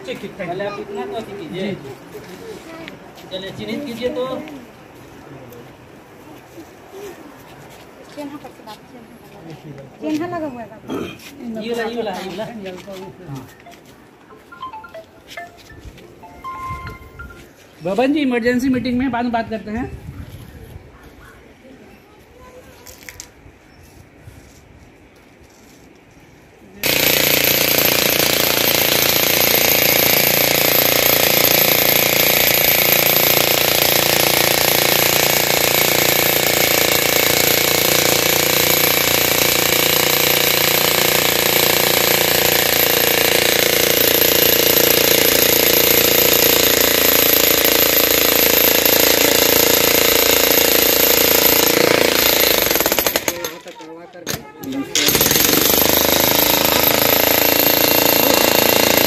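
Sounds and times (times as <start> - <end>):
demolition hammer on concrete: 26.8 - 59.0.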